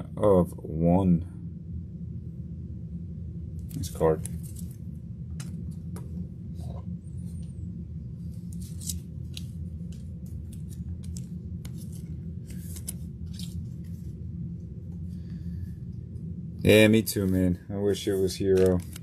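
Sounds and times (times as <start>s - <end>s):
steady low hum: 0.0s - 19.0s
cards rustling and clicking: 8.3s - 14.2s, 18.4s - 19.0s.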